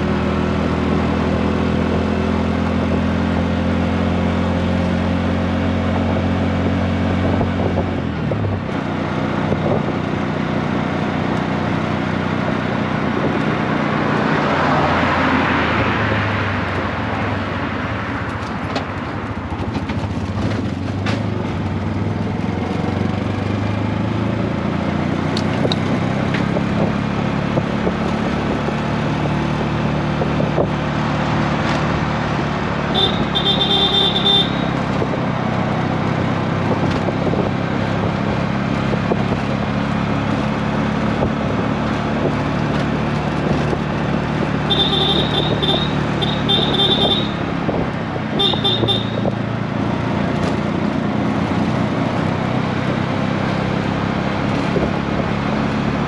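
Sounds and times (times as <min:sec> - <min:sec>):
road and wind noise: 0:00.0 - 0:56.0
car passing: 0:13.6 - 0:20.7.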